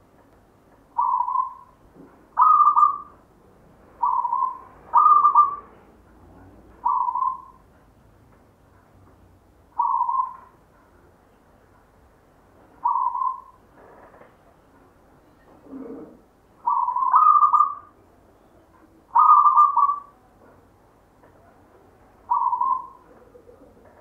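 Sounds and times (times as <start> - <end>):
dove cooing: 1.0 - 1.8, 2.4 - 3.2, 4.0 - 5.9, 6.8 - 7.6, 9.8 - 10.5, 12.8 - 14.0, 15.5 - 18.0, 19.1 - 20.2, 22.3 - 24.0.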